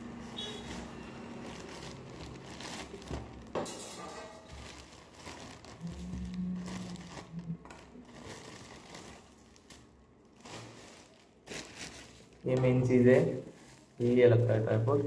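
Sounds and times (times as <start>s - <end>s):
plastic packaging crinkling: 0.0s - 15.0s
low steady hum: 4.7s - 13.0s.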